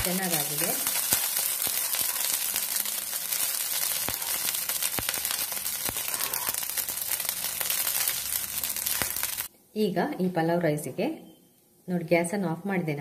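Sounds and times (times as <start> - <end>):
rice sizzling in a pan: 0.0 - 9.5.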